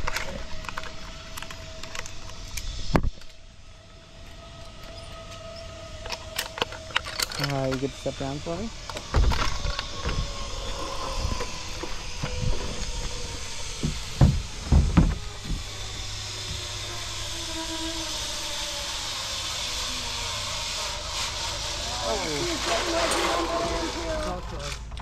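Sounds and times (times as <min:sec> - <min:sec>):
faint falling whine: 0:00.0 - 0:24.8
knocks on wooden deck: 0:13.8 - 0:15.7.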